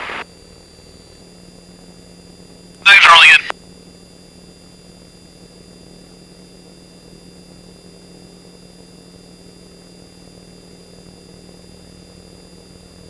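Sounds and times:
high steady whine: 0:02.9 - 0:03.5.

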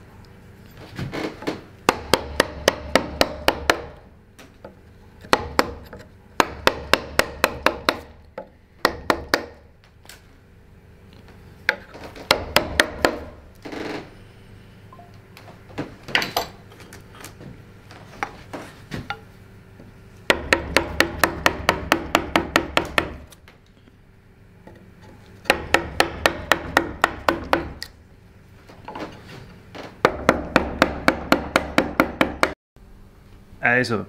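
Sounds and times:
mallet striking chisel into wood: 0:01.9 - 0:04.0, 0:05.2 - 0:09.7, 0:11.7 - 0:13.4, 0:20.3 - 0:23.4, 0:25.4 - 0:27.9, 0:30.0 - 0:32.6.

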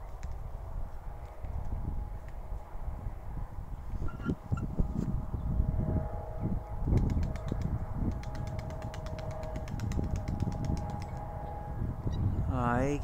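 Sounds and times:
wind rumble on microphone: 0:00.0 - 0:13.0
distant hum: 0:04.0 - 0:12.4.

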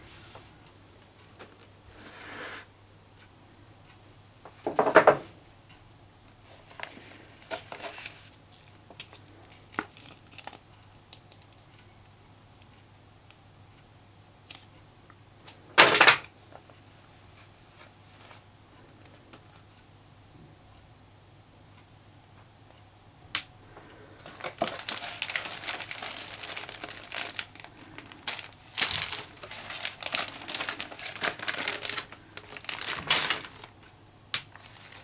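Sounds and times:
faint steady hum: 0:00.0 - 0:35.0
cardboard and paper rustling: 0:06.5 - 0:10.6, 0:24.2 - 0:33.8, 0:34.5 - 0:35.0.

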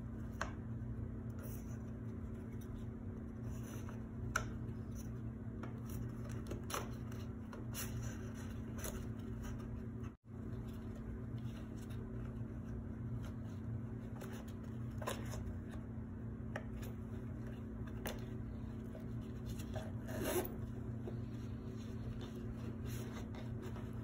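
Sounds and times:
steady low hum: 0:00.0 - 0:24.0
gloved hands handling handbag: 0:16.8 - 0:24.0
metal zipper drawn: 0:19.8 - 0:20.6.

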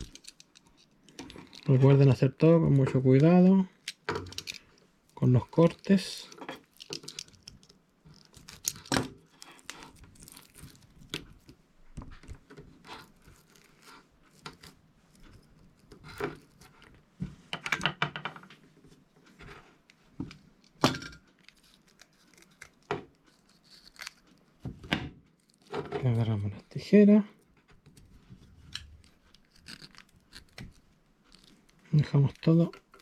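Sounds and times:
braided cable shield crinkling: 0:00.0 - 0:02.0, 0:02.9 - 0:17.1, 0:19.2 - 0:24.6, 0:25.3 - 0:26.4, 0:27.4 - 0:33.0
knife scraping plastic cable jacket: 0:05.5 - 0:11.5, 0:12.7 - 0:17.0, 0:21.4 - 0:24.4, 0:28.7 - 0:33.0.

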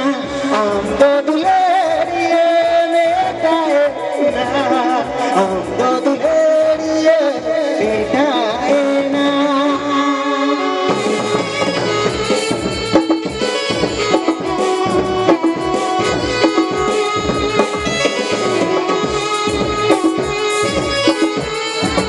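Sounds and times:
electronic keyboard melody: 0:10.7 - 0:22.0
fast drum beat: 0:10.9 - 0:22.0.

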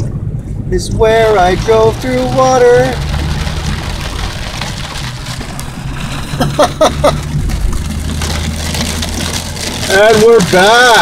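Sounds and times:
engine and road hum: 0:00.0 - 0:11.0
rain hiss and tyre spray: 0:01.0 - 0:11.0
driver laughing: 0:06.0 - 0:07.6.

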